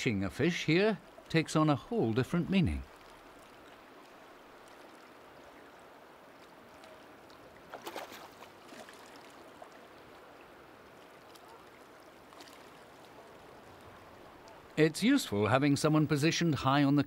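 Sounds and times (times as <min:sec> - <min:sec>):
shallow sea water washing: 0:00.2 - 0:15.4
fish splashing in water: 0:06.7 - 0:10.0, 0:11.2 - 0:14.7.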